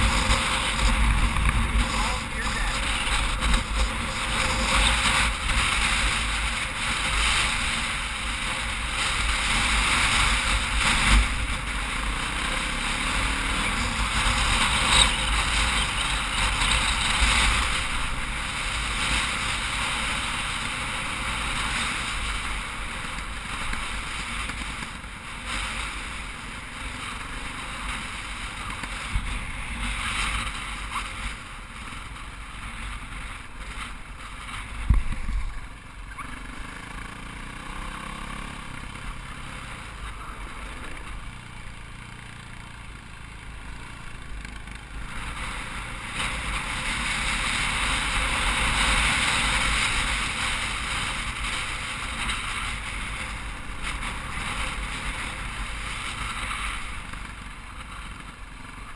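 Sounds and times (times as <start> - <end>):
wind rushing on helmet: 0.0 - 26.4, 28.0 - 35.8
dirt bike engine running: 0.0 - 58.9.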